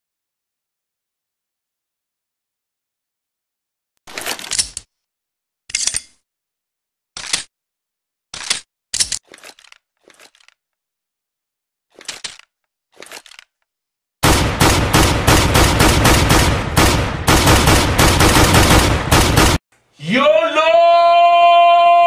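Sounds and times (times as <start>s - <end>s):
metallic gun clicks: 4.1s - 4.9s, 5.7s - 6.2s, 8.4s - 10.6s
rapid pistol gunfire: 14.2s - 19.6s.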